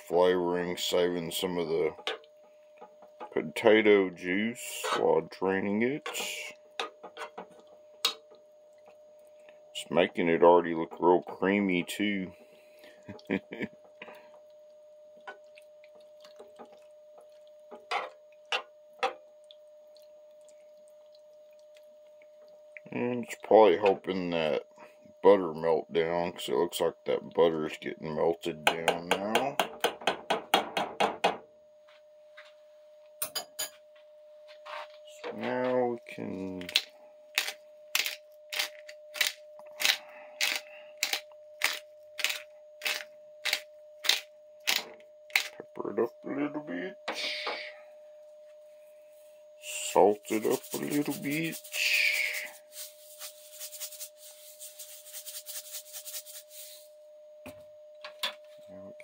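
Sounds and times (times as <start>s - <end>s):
faint steady hum: 0.0s - 59.0s
pepper grinder crunching: 36.6s - 45.5s.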